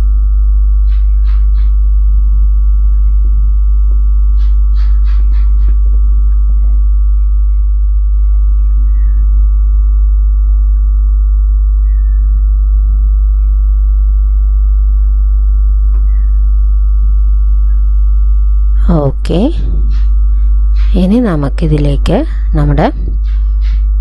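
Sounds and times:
deep bass drone: 0:00.0 - 0:24.0.

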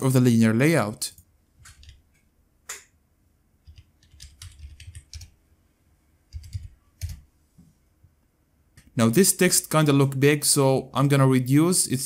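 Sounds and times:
computer keyboard typing: 0:01.6 - 0:02.0, 0:03.6 - 0:05.4, 0:06.3 - 0:07.3.

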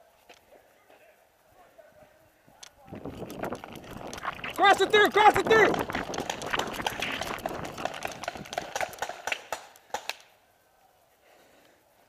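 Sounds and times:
sharp cracks: 0:02.6 - 0:10.3.

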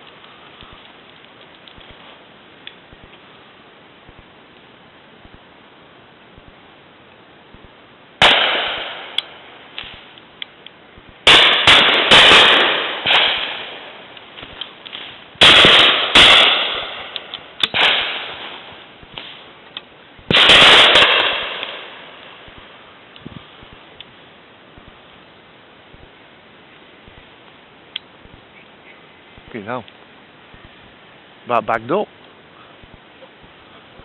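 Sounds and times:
shotgun shots echoing: 0:08.2 - 0:10.0, 0:11.2 - 0:14.0, 0:15.4 - 0:19.4, 0:20.3 - 0:22.6.

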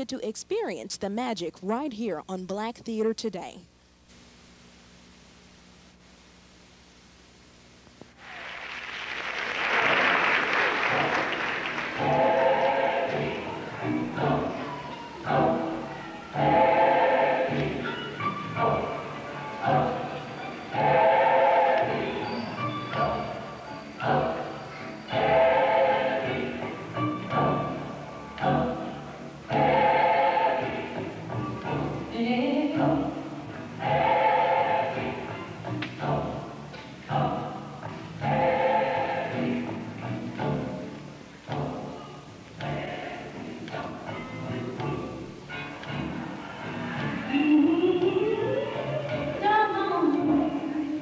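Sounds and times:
room hiss: 0:00.0 - 0:51.0
audience applause: 0:08.2 - 0:12.7
choral singing: 0:09.6 - 0:51.0.

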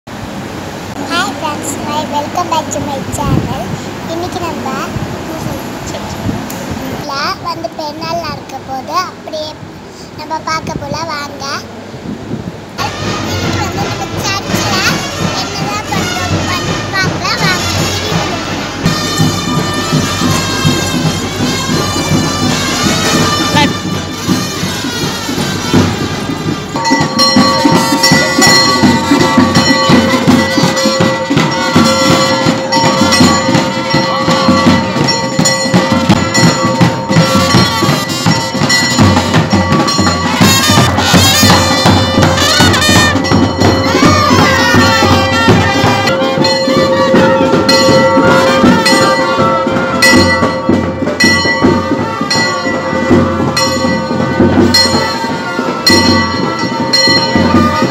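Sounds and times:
steady drum beat: 0:11.7 - 0:57.9.

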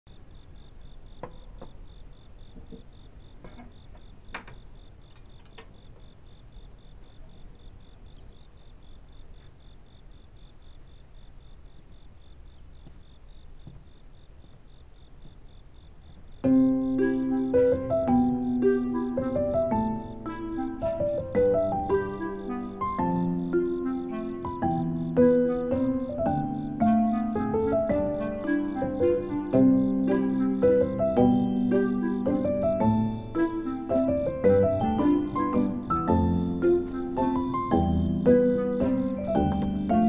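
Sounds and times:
piano music: 0:16.4 - 0:40.0.

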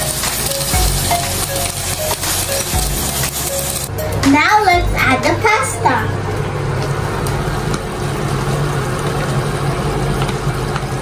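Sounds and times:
even hiss: 0:00.0 - 0:04.4
fan motor humming: 0:00.0 - 0:11.0.

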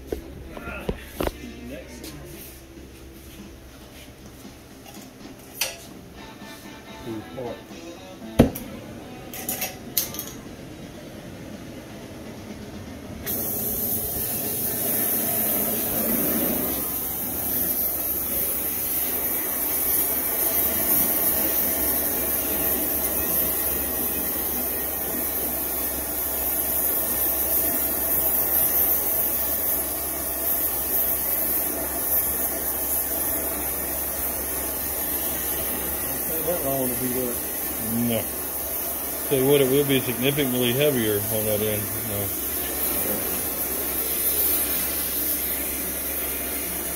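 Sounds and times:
cutting torch hissing: 0:13.2 - 0:46.9.

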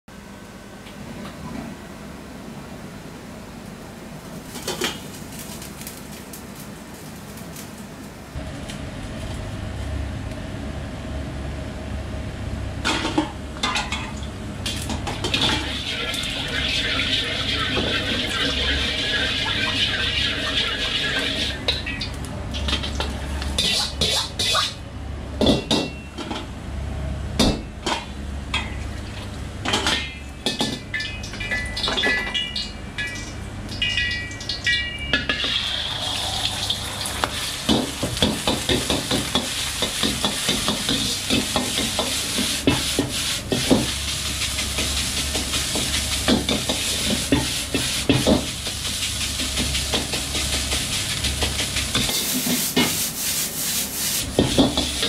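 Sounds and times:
low hum from range: 0:00.1 - 0:23.7
oil sizzling in a wok: 0:14.7 - 0:24.7, 0:33.7 - 0:55.0
ladle scraping wok: 0:14.8 - 0:22.0, 0:35.3 - 0:55.0.

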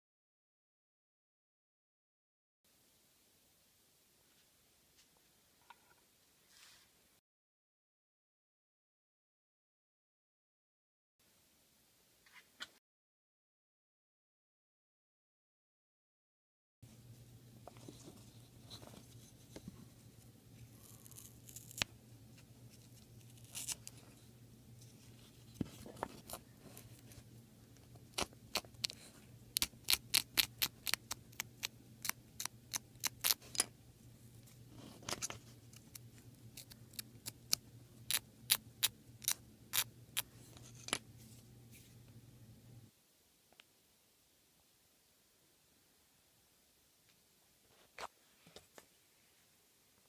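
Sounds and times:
felt tearing: 0:20.8 - 0:21.9.

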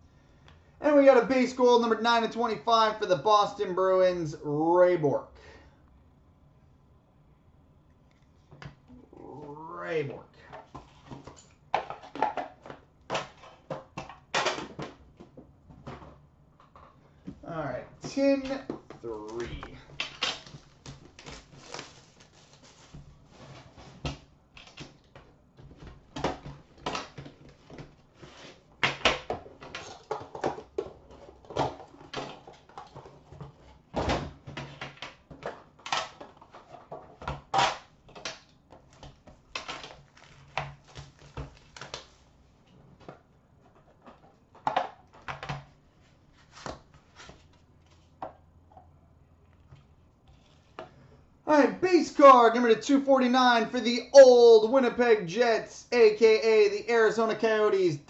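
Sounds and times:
cardboard and plastic rustling: 0:18.0 - 0:48.2.

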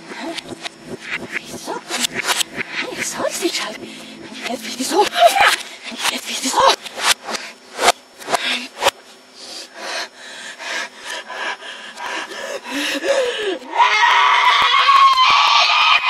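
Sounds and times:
reversed high-pitched scream: 0:00.0 - 0:07.9
reversed sharp clicks: 0:00.0 - 0:09.0
reversed rasping breathy noises: 0:00.0 - 0:13.4.

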